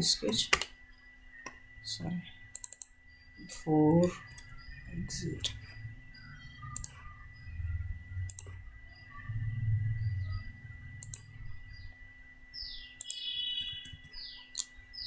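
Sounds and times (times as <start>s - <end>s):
computer mouse clicks: 0.3s - 0.7s, 2.5s - 3.0s, 6.7s - 7.0s, 8.3s - 8.6s, 11.0s - 11.3s, 13.0s - 14.8s
bird chirps: 0.3s - 15.0s
low rumble: 4.6s - 11.9s.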